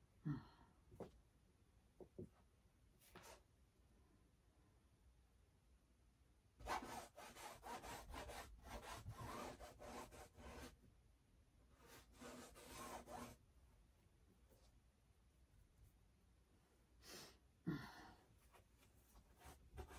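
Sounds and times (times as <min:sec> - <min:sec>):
paintbrush scrubbing on canvas: 0:06.6 - 0:10.7, 0:11.8 - 0:13.4.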